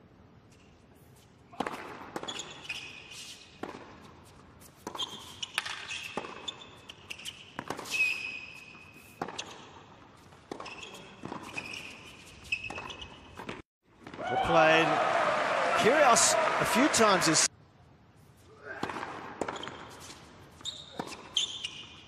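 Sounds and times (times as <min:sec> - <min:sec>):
sneakers squeaking on court: 0:01.1 - 0:14.2, 0:18.8 - 0:22.0
racquet striking tennis ball: 0:03.6 - 0:04.0, 0:04.8 - 0:06.5.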